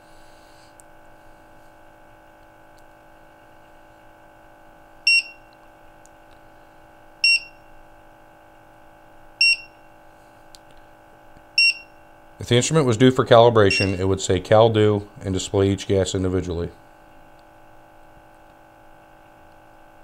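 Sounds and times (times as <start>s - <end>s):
steady low hum: 0.0s - 20.0s
short high beeps: 5.1s - 5.4s, 7.2s - 7.6s, 9.4s - 9.7s, 11.6s - 11.9s, 13.7s - 14.0s.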